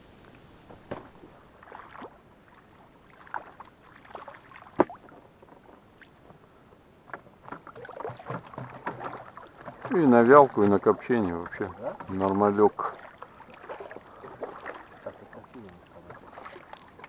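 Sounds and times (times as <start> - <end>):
oars splashing in water: 0.7 - 17.0
oars knocking: 7.1 - 16.8.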